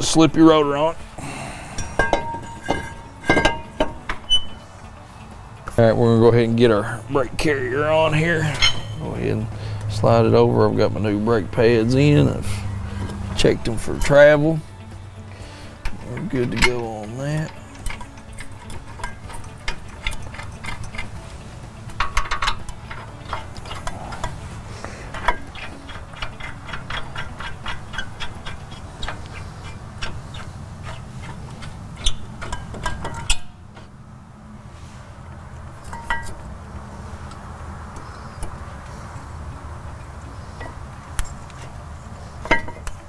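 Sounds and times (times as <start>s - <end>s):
steady low hum: 0.0s - 43.0s
metal clinks: 1.8s - 4.6s, 8.4s - 9.2s, 15.8s - 24.4s, 25.1s - 33.6s, 35.8s - 36.5s
hand ratchet clicking: 15.8s - 33.6s.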